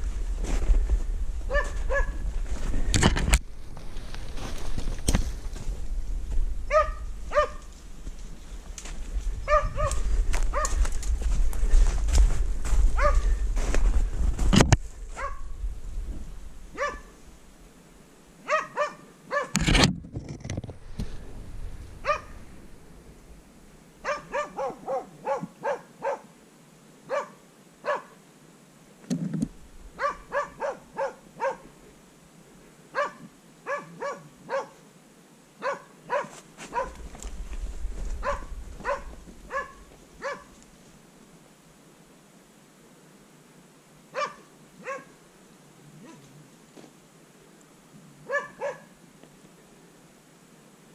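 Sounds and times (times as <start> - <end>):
dog barking: 1.5 - 2.2, 6.7 - 7.7, 9.4 - 10.8, 13.0 - 13.3, 15.2 - 15.5, 16.8 - 17.2, 18.4 - 19.6, 22.0 - 22.4, 24.0 - 26.3, 27.1 - 28.2, 30.0 - 31.7, 32.9 - 34.8, 35.6 - 37.0, 38.2 - 40.6, 44.1 - 45.2, 48.2 - 48.9.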